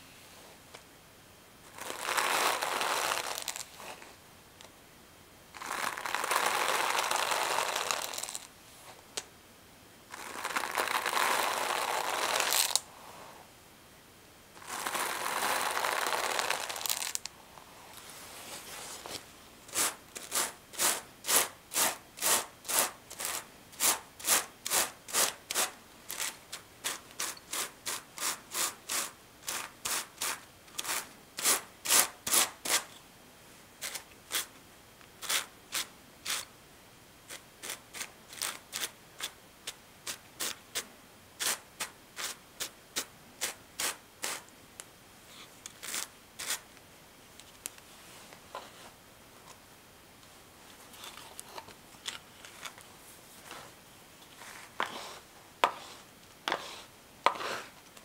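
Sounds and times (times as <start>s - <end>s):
hand carders rubbing through wool: 54.4s - 57.8s.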